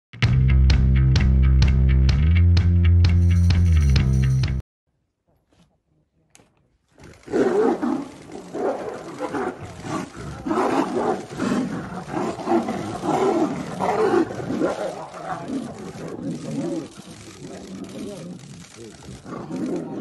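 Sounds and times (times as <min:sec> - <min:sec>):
tigers roaring and growling: 0:07.0 - 0:20.0.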